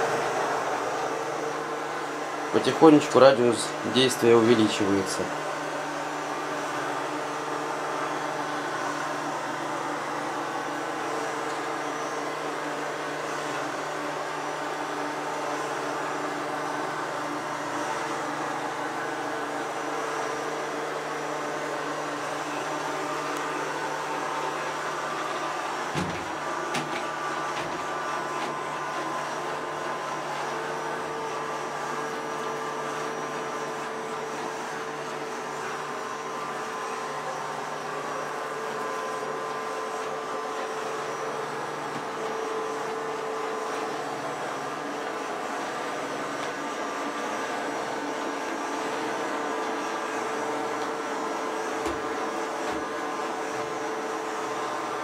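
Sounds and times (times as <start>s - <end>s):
robot vacuum running: 0.0s - 55.0s
vacuum knocking into wall: 25.9s - 28.6s.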